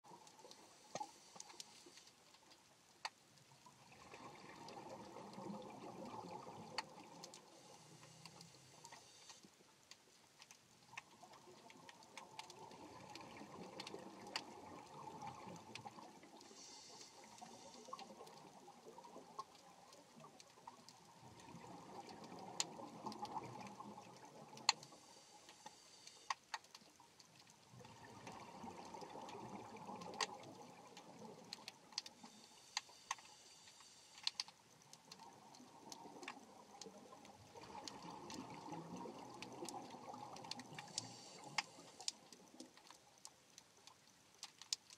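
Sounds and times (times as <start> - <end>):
underwater rushing water: 0.0 - 44.9
sharp clicks: 32.8 - 35.3.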